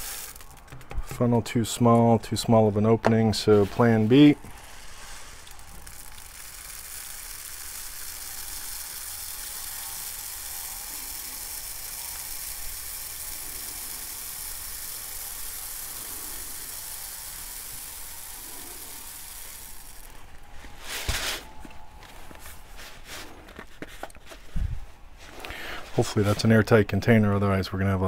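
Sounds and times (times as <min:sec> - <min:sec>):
beads pouring into tube: 0:00.0 - 0:01.2, 0:03.6 - 0:21.4.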